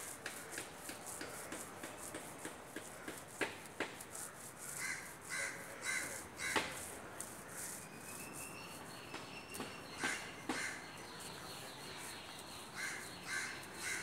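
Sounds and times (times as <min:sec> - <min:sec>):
crow cawing: 0:04.3 - 0:06.8, 0:10.0 - 0:10.9, 0:12.8 - 0:14.0.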